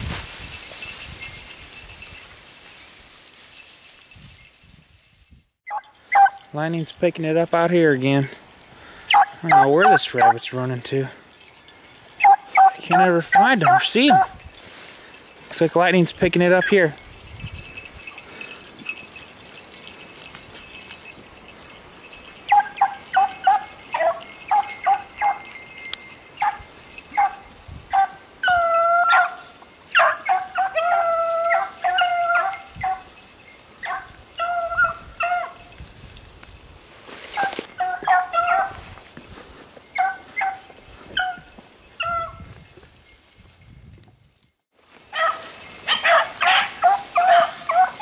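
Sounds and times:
dogs baying and barking: 5.7s - 6.6s, 8.5s - 10.5s, 11.1s - 14.6s, 17.8s - 35.8s, 37.3s - 39.1s, 39.8s - 42.4s, 45.1s - 48.0s.

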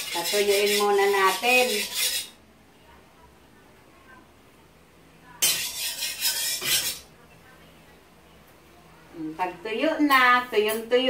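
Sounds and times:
metal spatula scraping a wok: 0.0s - 2.4s, 5.4s - 7.1s.

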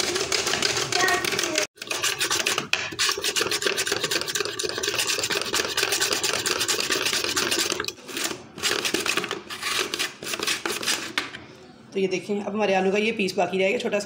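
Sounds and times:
potato rasping over cutter blades: 0.9s - 11.1s.

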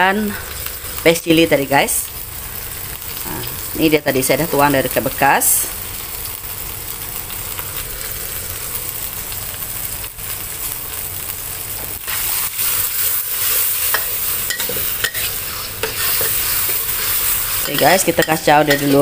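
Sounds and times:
sauce sizzling in a wok: 0.0s - 19.0s
metal spatula scraping a wok: 12.0s - 19.0s.

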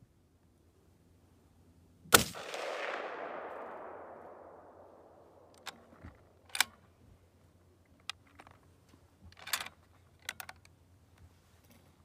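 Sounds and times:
rifle shot echo: 2.1s - 6.4s
rifle bolt metallic clicks: 2.4s - 6.8s, 9.4s - 10.7s.

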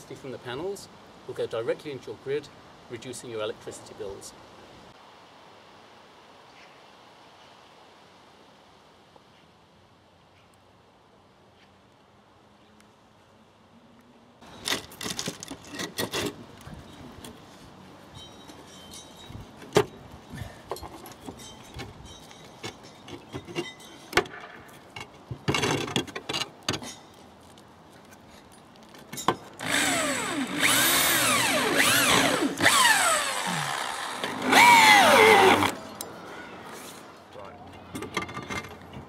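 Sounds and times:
electric drill whining: 29.6s - 35.8s.

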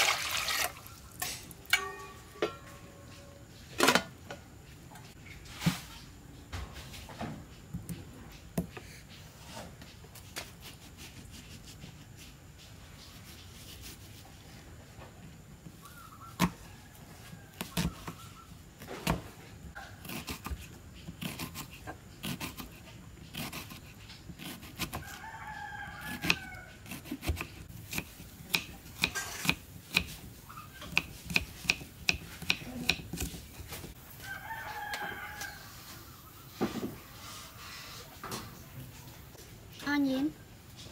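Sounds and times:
knife chopping on wooden board: 30.9s - 33.4s.

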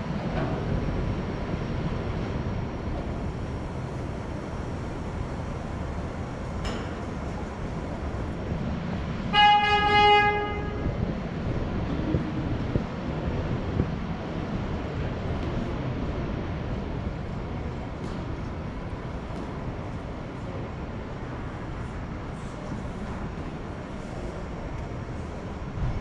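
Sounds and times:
steady low rumble: 0.0s - 26.0s
horn blast: 9.3s - 11.0s.

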